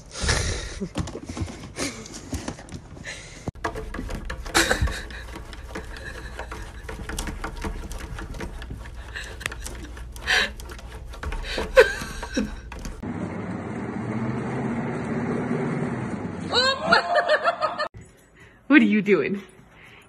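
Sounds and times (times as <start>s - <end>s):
cat claws tapping on glass: 3.6s - 13.0s.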